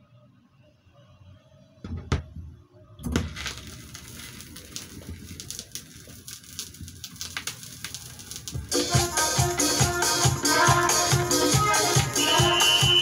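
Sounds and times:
crackling rustling noise: 0:03.2 - 0:09.0.

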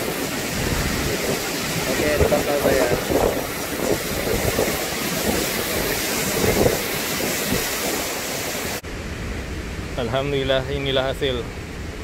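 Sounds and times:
waterfall rushing: 0:00.0 - 0:08.8.

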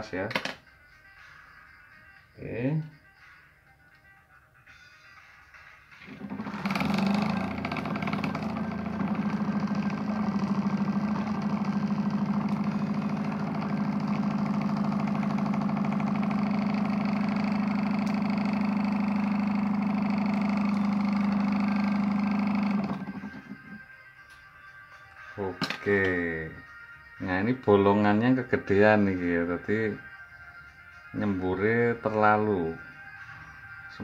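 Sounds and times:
cooling fan humming: 0:06.0 - 0:23.9.

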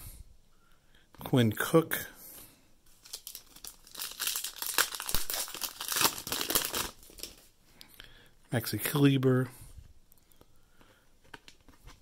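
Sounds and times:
foil wrapper crinkling and tearing: 0:02.9 - 0:07.5.

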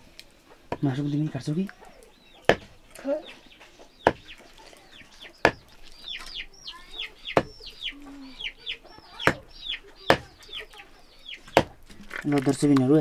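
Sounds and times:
chickens cheeping: 0:00.3 - 0:11.9
knife chopping on wooden block: 0:02.4 - 0:02.7, 0:04.0 - 0:04.3, 0:05.4 - 0:05.6.

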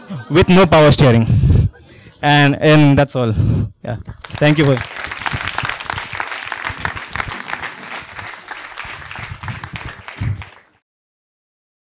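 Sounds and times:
audience applauding: 0:04.1 - 0:10.8.

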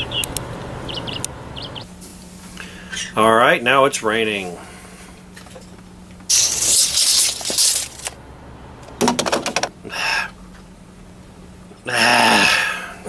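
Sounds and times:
man sighing: 0:11.9 - 0:13.0.

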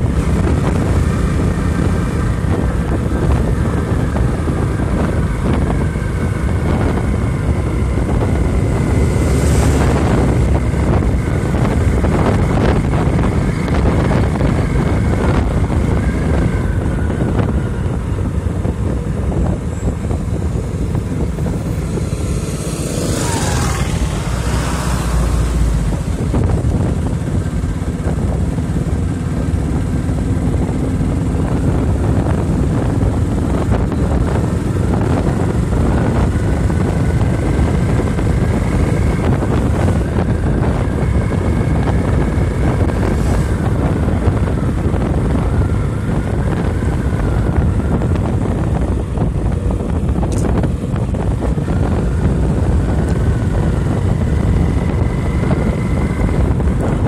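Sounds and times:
motorcycle engine running: 0:00.0 - 0:57.0
wind rushing over microphone: 0:00.0 - 0:57.0.

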